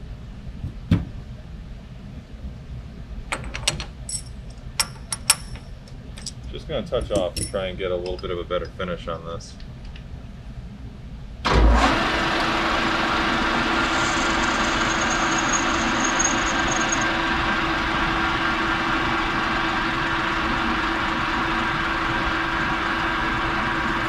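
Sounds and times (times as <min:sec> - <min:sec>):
metal lathe running: 0:11.8 - 0:24.0
faint high whine: 0:13.3 - 0:18.6.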